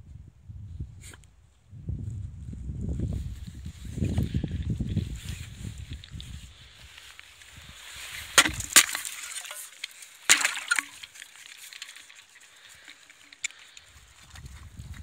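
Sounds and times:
thin ice cracking: 5.9s - 14.7s.

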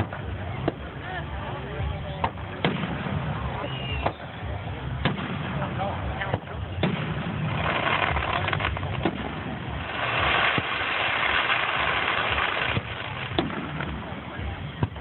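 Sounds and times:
fireworks popping and banging: 0.0s - 15.0s
dense hiss: 6.8s - 14.7s.

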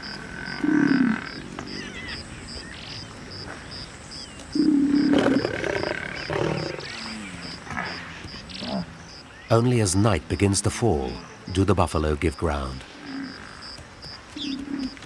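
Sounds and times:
lioness snarling and growling: 4.6s - 8.0s.

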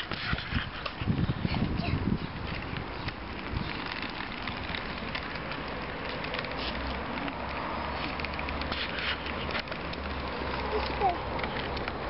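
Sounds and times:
wind rumbling on microphone: 0.0s - 8.6s
bicycle tyres rolling on rough tarmac: 0.0s - 12.0s.

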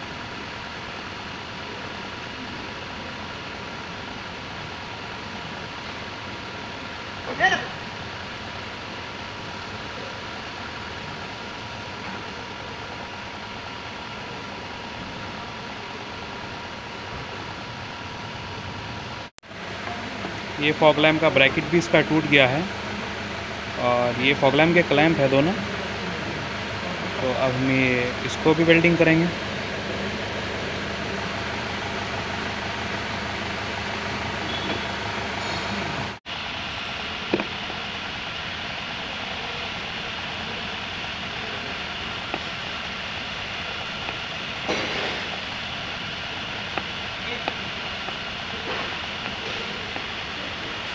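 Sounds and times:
hot-air welding gun hissing: 20.1s - 50.9s.

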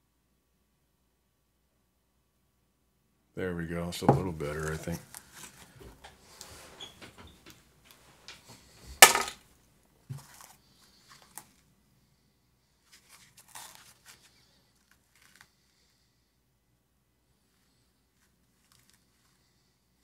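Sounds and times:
faint rustling and scraping: 4.0s - 9.0s, 10.0s - 16.2s, 17.3s - 20.0s.

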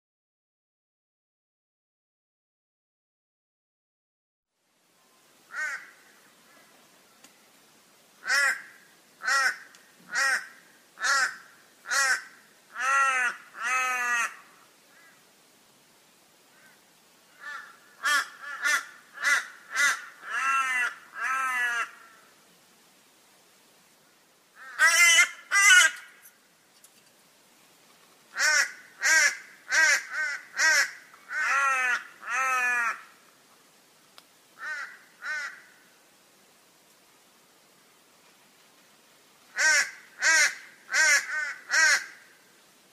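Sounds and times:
crow cawing: 5.5s - 6.6s, 8.2s - 15.2s, 16.5s - 22.3s, 24.6s - 26.2s, 28.3s - 33.2s, 34.6s - 35.8s, 39.5s - 42.4s.

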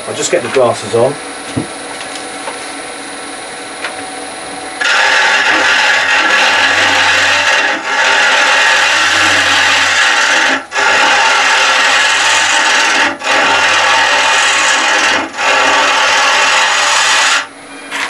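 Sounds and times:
lathe cutter scraping wood: 4.8s - 18.0s.

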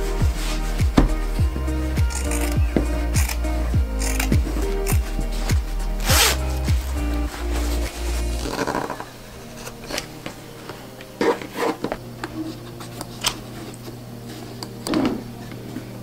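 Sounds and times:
background music: 0.0s - 16.0s
rubbing and rustling of leather bag: 4.8s - 9.0s.

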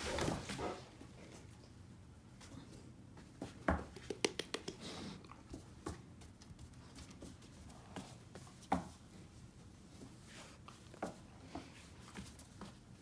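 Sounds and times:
dog claws clicking on hardwood floor: 3.7s - 4.8s.

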